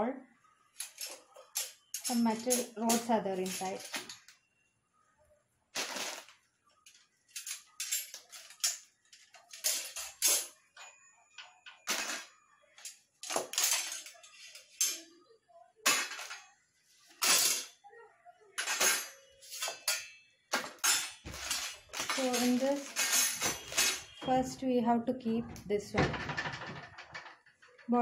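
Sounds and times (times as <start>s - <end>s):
metal rack clinking and scraping: 0.8s - 4.3s, 5.8s - 10.9s, 11.7s - 15.1s, 15.9s - 16.4s, 17.1s - 17.8s, 18.6s - 24.4s, 25.4s - 28.0s.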